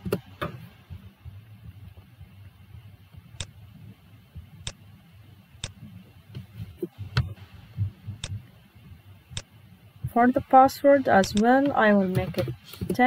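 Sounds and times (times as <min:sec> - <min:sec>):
computer mouse and keyboard clicks: 0:11.2 - 0:13.0.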